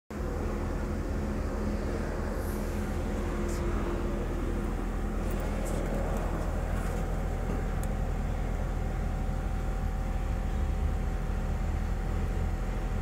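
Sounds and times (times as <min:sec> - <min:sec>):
car engine idling: 0:00.1 - 0:13.0.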